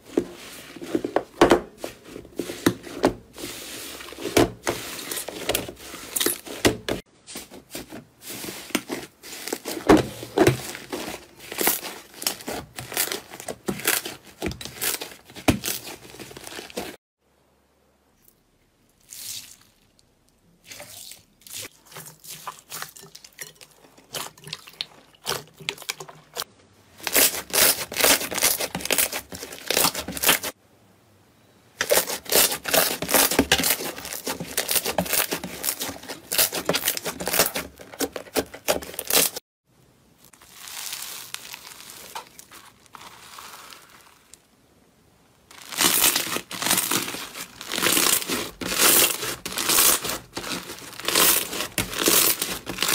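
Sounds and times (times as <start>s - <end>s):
slime crackling and popping: 40.3s - 44.5s, 45.5s - 52.9s.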